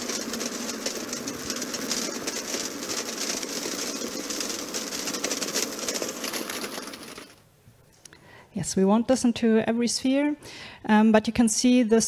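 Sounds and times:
crackling noise texture: 0.0s - 7.4s.

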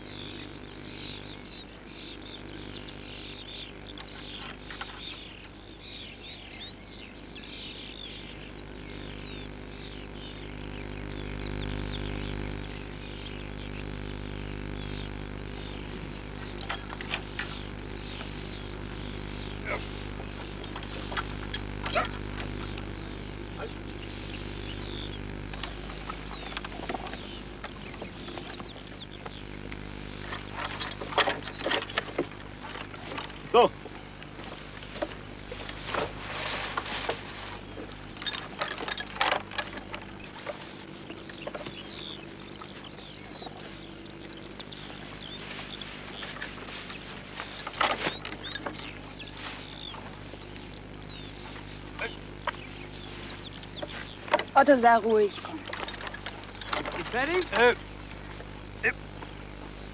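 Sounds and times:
low steady hum: 0.0s - 59.9s
small birds chirping: 0.0s - 59.9s
hay rustling: 16.8s - 25.0s, 34.0s - 38.2s, 43.6s - 50.6s, 51.3s - 55.3s.

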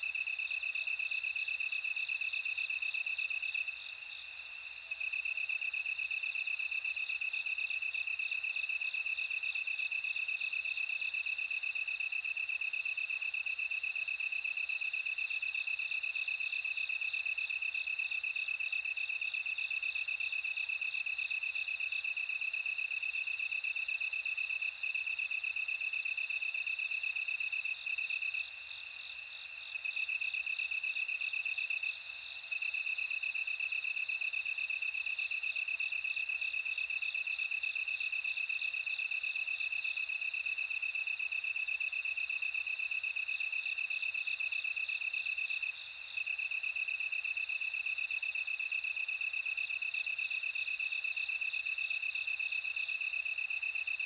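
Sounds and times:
crickets trilling: 25.2s - 54.0s.

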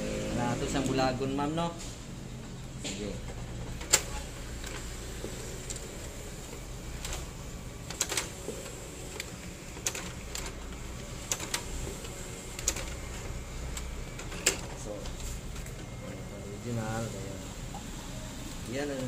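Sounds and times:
photocopier motor hum: 0.0s - 19.0s
sharp clicks of document feeder: 2.9s - 5.0s, 5.6s - 16.0s.

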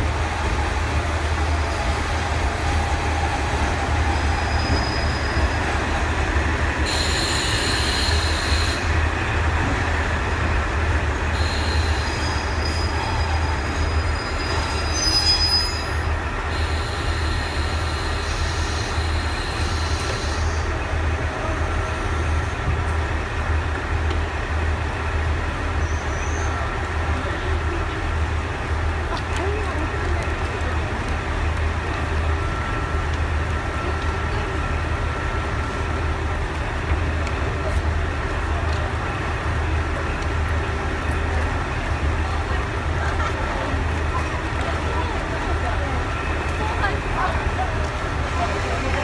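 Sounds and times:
diesel train engines rumbling: 0.0s - 49.0s
train brakes and wheels squealing: 2.7s - 6.0s, 6.8s - 9.0s, 11.3s - 22.7s, 25.8s - 26.7s.

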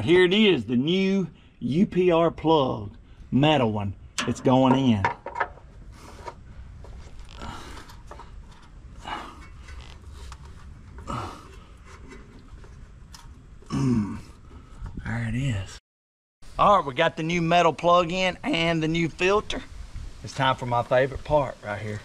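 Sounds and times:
man breathing: 5.9s - 8.4s, 9.0s - 11.9s
man grunting with effort: 13.7s - 14.4s.

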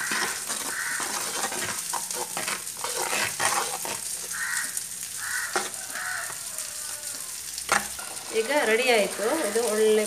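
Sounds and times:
metal spoon scraping clay pot: 0.0s - 4.2s.

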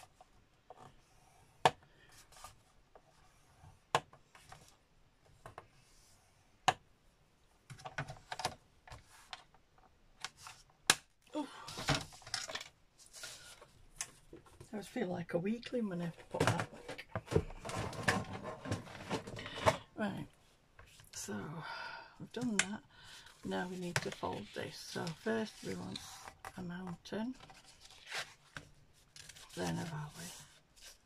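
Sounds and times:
rustling: 27.4s - 31.0s.

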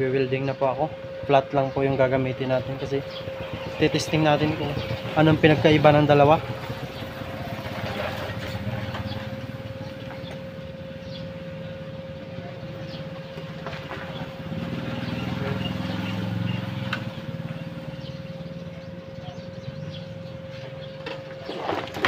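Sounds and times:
welding machine electrical hum: 0.0s - 15.5s.

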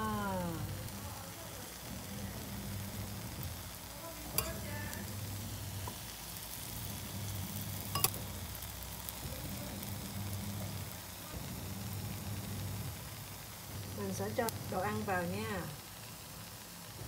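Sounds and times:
cakes sizzling in hot oil: 0.0s - 17.0s
sharp clinks against pan: 4.4s - 4.7s, 7.9s - 8.2s.

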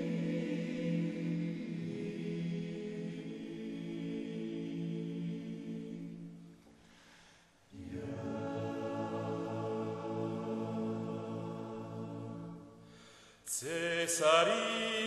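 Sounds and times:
a cappella vocal ensemble singing: 0.0s - 6.6s, 7.7s - 15.0s.

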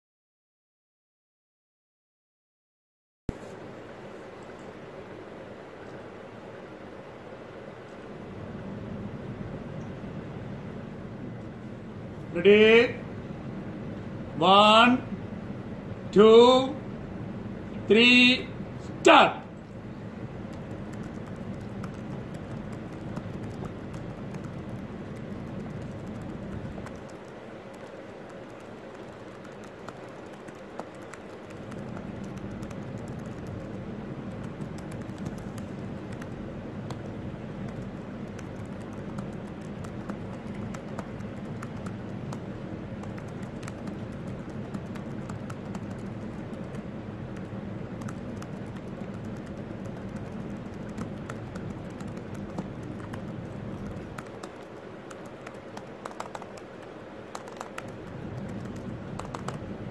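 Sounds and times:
low hum: 16.8s - 59.9s
laptop keyboard typing: 20.3s - 59.9s.

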